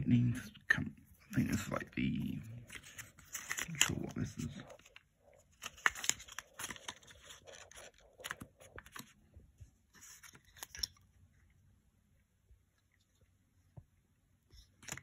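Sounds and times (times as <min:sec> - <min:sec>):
cardboard and paper rustling: 0:01.3 - 0:09.2, 0:09.8 - 0:11.0.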